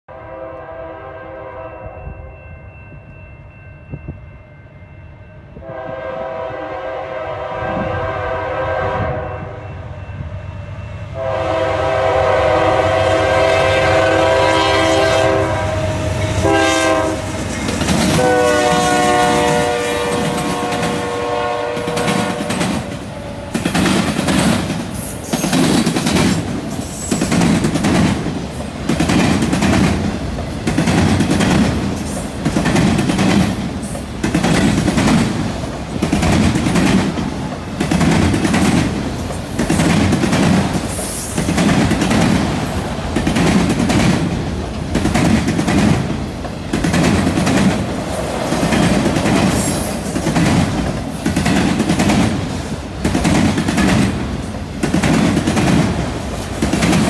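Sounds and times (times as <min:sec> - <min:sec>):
locomotive horn blasts: 0:00.1 - 0:02.4, 0:05.5 - 0:09.8, 0:11.0 - 0:17.4, 0:18.1 - 0:23.6.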